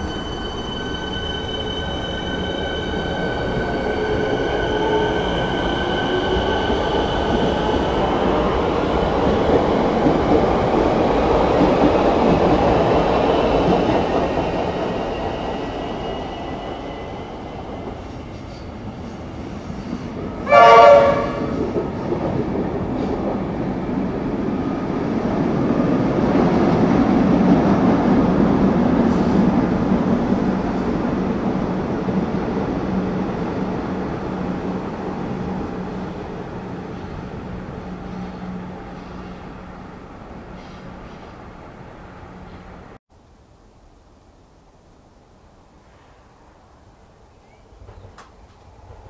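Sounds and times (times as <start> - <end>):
electric train pulling away: 0.0 - 20.1
train passing at speed: 0.0 - 43.0, 45.6 - 49.0
train horn blast: 20.4 - 21.6.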